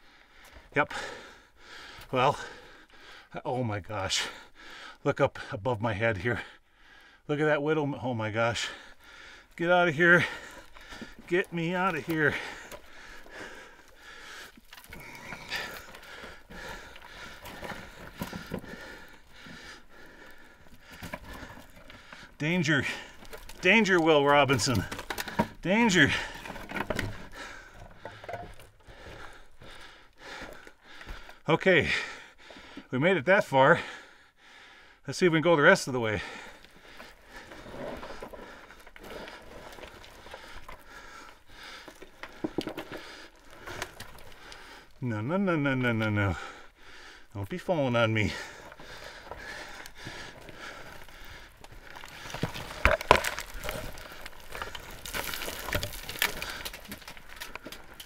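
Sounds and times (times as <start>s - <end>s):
person scrambling over loose rock: 9.5s - 31.4s, 36.3s - 45.0s, 48.1s - 58.0s.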